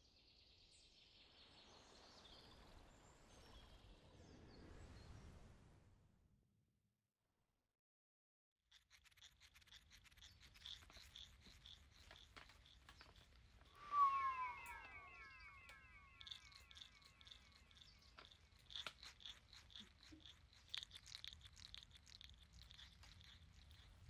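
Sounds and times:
regular high chirping: 9.3 - 24.0.

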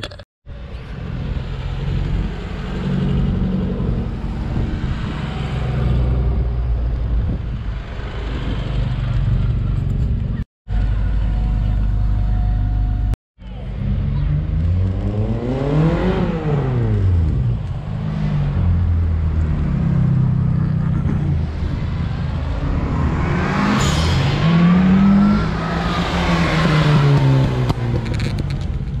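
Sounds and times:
high engine whine: 0.0 - 15.4
small car engines revving past: 13.7 - 17.4, 21.3 - 28.6.

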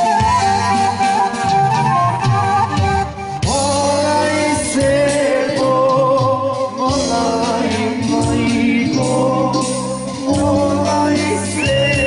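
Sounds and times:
folk band playing: 0.0 - 12.0
percussion steady beat: 0.0 - 12.0.

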